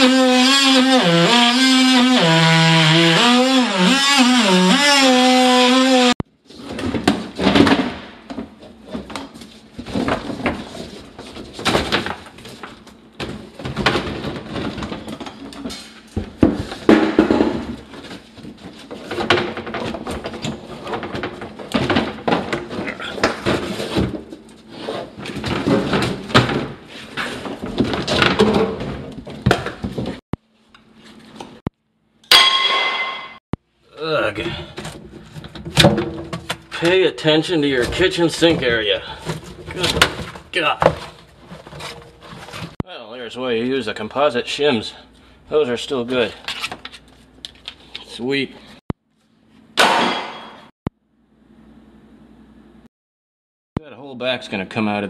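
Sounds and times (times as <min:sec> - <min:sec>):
metal clang: 0:32.2 - 0:33.4, 0:49.8 - 0:50.7.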